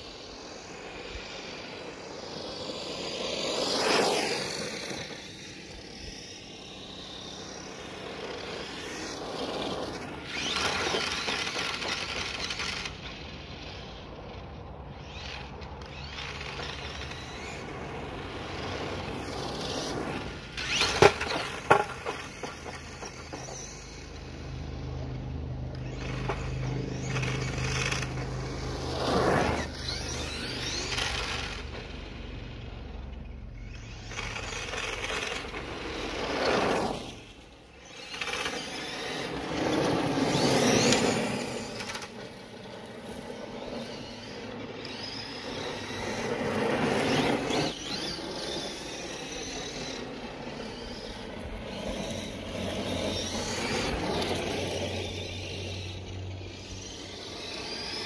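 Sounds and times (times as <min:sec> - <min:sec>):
electric motor whine: 0:00.0 - 0:58.0
tyres scrabbling over gravel: 0:33.6 - 0:49.9.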